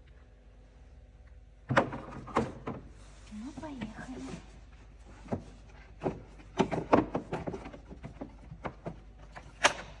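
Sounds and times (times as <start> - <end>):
plastic knocks and rattles: 5.2 - 9.8.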